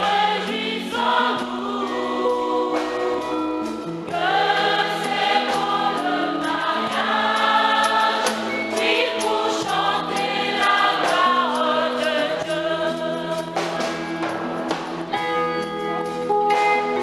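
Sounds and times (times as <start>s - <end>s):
women's choir singing a hymn: 0.0s - 13.9s.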